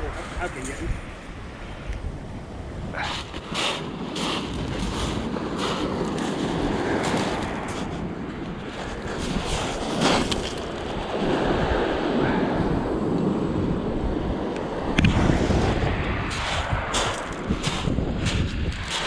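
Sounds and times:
wind buffeting microphone: 0.0 - 19.0
waves washing onto shingle: 3.0 - 14.8
footsteps on shingle: 3.2 - 11.4, 16.1 - 19.0.

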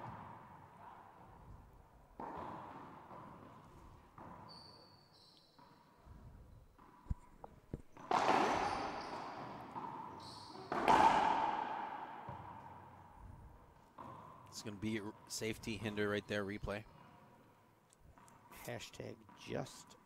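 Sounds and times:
ball bouncing and knocking: 0.0 - 4.5, 5.6 - 14.5
ball cracking off racquets and walls: 0.0 - 4.5, 6.8 - 14.4
shoes squeaking on hardwood floor: 3.3 - 11.0.

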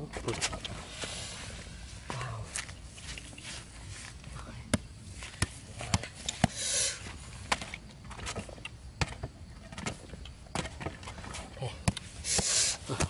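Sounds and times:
rustle: 0.1 - 8.7
footsteps on dry grass: 1.9 - 4.3.

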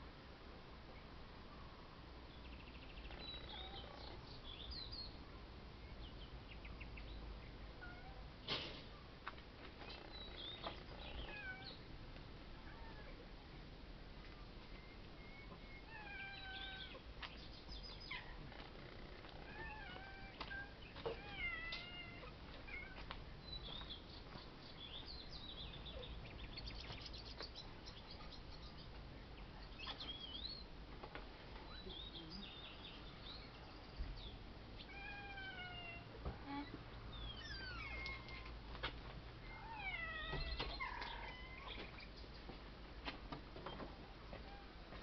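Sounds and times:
cats meowing: 7.8 - 8.3, 10.9 - 11.8, 15.4 - 17.0, 19.2 - 23.0, 34.8 - 38.6, 39.4 - 42.0.

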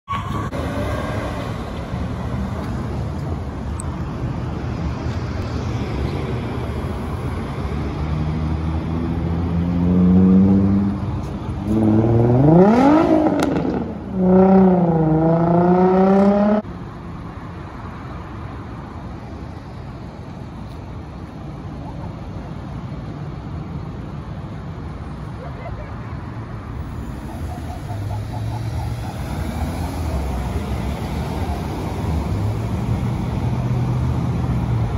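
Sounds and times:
city traffic: 0.0 - 34.9
engine revving through gears: 11.7 - 16.6.

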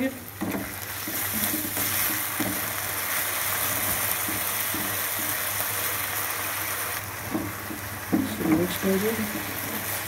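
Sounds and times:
sauce sizzling in a frying pan: 0.0 - 10.0
spatula scraping pan: 0.4 - 5.4.

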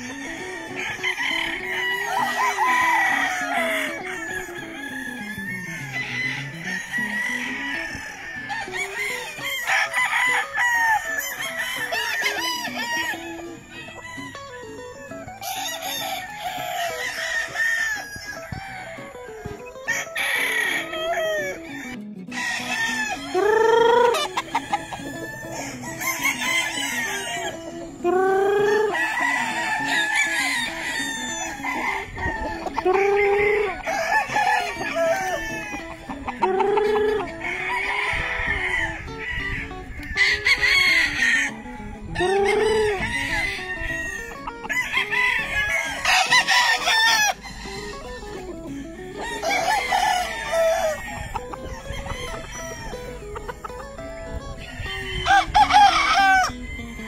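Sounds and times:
roosters crowing: 0.0 - 57.0.

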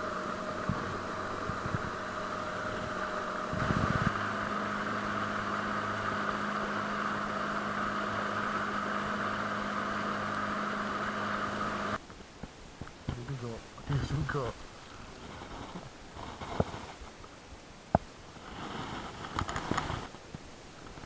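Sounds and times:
outboard motor running: 0.0 - 12.0
water rushing along hull: 0.0 - 12.0.

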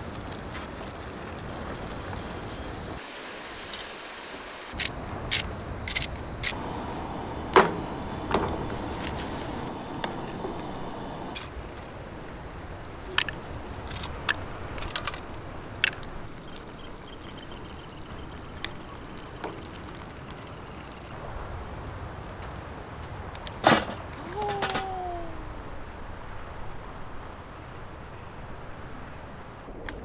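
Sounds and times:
low rushing noise: 0.9 - 23.4.

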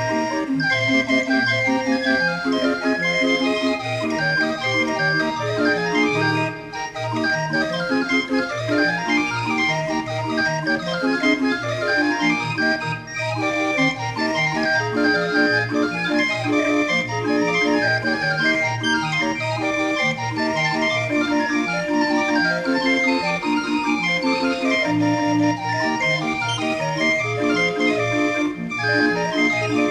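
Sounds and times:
barrel organ playing a tune: 0.0 - 29.9.

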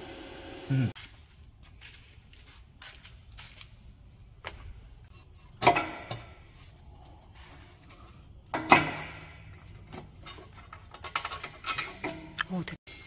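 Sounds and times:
metal exhaust parts clanking: 5.1 - 6.6, 7.4 - 13.0.

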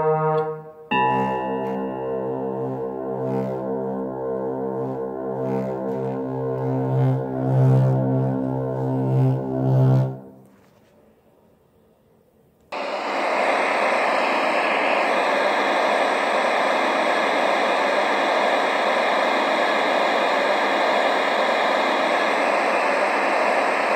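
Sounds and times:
loud jet-like rushing noise: 12.8 - 23.9.

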